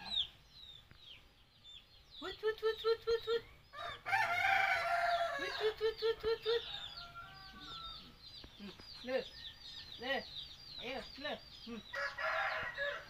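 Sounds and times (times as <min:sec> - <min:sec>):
small birds chirping: 0:00.0 - 0:13.0
rooster crowing: 0:03.8 - 0:05.7, 0:06.6 - 0:08.1, 0:11.9 - 0:13.0.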